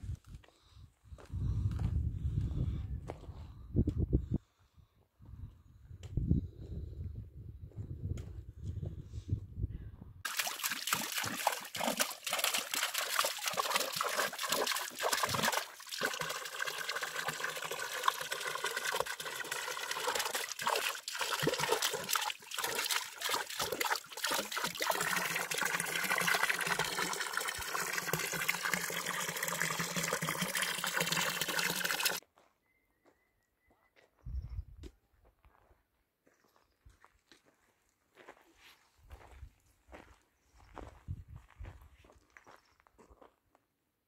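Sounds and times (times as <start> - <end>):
water splashing into stone trough: 10.2 - 32.2.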